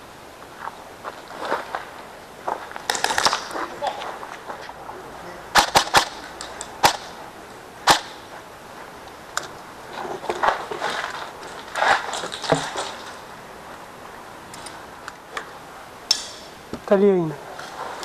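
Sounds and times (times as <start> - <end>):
scuffing and rustling: 0.4 - 4.9, 8.3 - 13.8
airsoft gun shots: 5.5 - 6.2, 6.8 - 7.2, 7.8 - 8.2.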